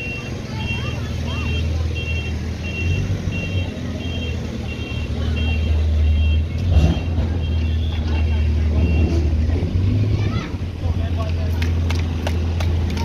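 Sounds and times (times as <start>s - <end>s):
reversing alarm beeping: 0.0s - 9.2s
diesel engine running: 0.0s - 13.0s.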